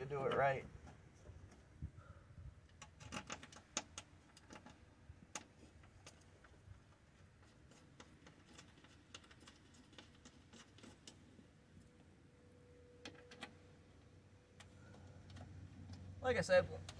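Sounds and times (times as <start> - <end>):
light clicks and taps of screws: 2.7 - 6.6, 13.0 - 16.1.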